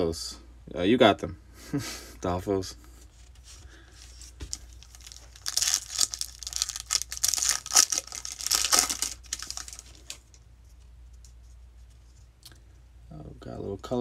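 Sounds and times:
foil wrapper tearing and crinkling: 4.4 - 10.3.

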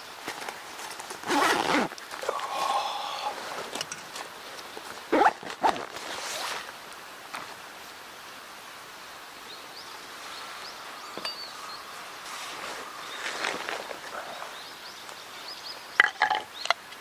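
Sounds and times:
faint high bird chirps: 9.5 - 12.0.

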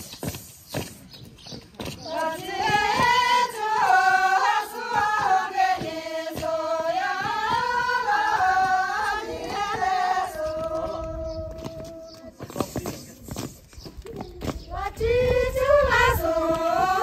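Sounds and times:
women singing in unison: 2.0 - 12.2, 14.6 - 17.0.

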